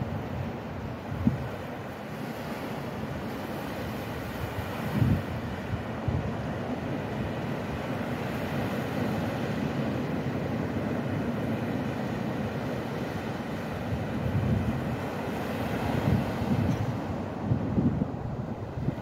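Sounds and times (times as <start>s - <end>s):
wind buffeting microphone: 0.0s - 1.7s, 4.3s - 7.9s, 13.7s - 19.0s.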